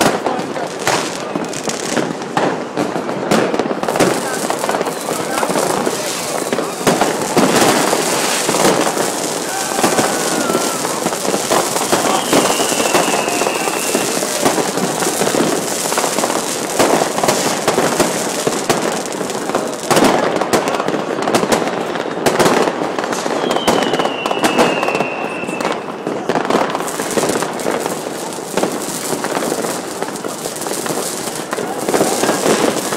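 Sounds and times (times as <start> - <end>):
fireworks crackling and banging: 0.0 - 32.9
descending firework whistle: 4.7 - 17.8, 23.0 - 30.2.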